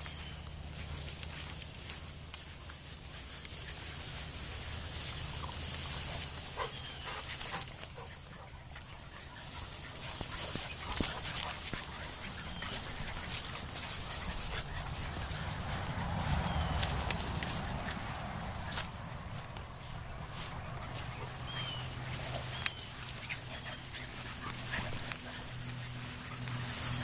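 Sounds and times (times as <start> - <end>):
rustling in grass and brush: 0.0 - 27.0
puppies whimpering and squeaking: 6.5 - 17.7, 20.2 - 27.0.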